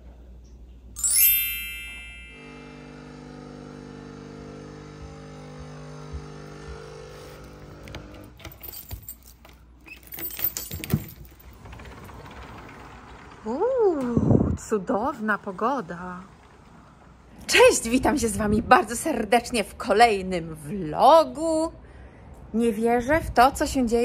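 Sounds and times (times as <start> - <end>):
intro music chime and chord: 1.0 - 3.5.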